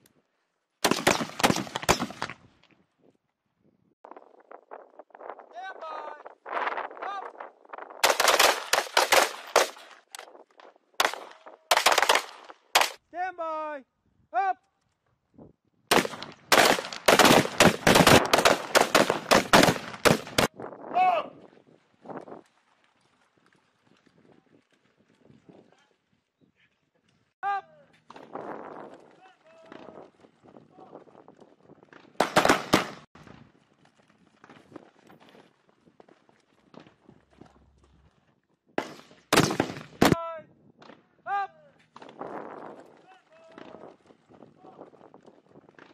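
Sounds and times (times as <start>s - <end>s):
rifle gunfire: 0.8s - 2.3s, 8.0s - 9.9s, 11.0s - 13.0s, 15.9s - 20.5s, 32.2s - 33.1s, 38.8s - 40.2s.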